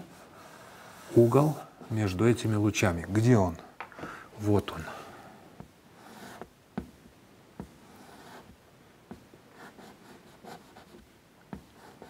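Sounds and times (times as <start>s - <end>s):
chalk scraping softly: 0.0s - 2.4s, 6.0s - 6.5s, 7.6s - 12.0s
chalk tapping on blackboard: 5.6s - 7.0s, 7.6s - 12.0s.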